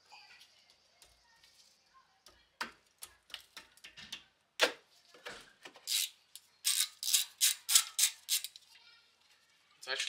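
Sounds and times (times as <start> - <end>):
ratchet wrench clicking: 5.9 - 8.5.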